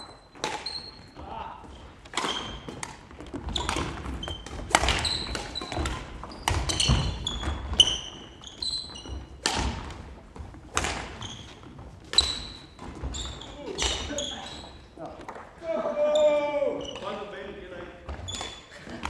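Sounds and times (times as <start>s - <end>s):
shoes squeaking on court: 0.0s - 15.1s, 16.8s - 19.0s
racket striking shuttlecock: 0.2s - 0.9s, 2.0s - 8.0s, 9.3s - 10.0s, 10.7s - 13.0s.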